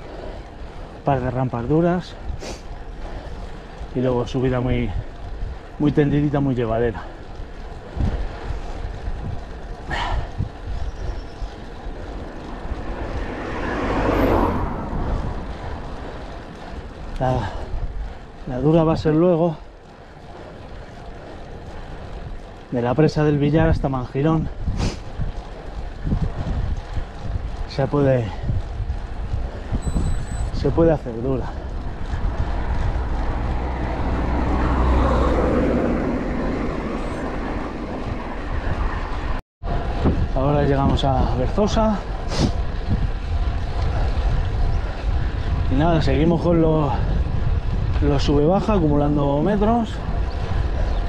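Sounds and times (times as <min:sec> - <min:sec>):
bike tyres rumbling on asphalt: 0:00.0 - 0:51.0
road noise: 0:00.0 - 0:51.0
wind on microphone: 0:06.9 - 0:19.0, 0:23.4 - 0:51.0
rushing noise: 0:11.4 - 0:16.9.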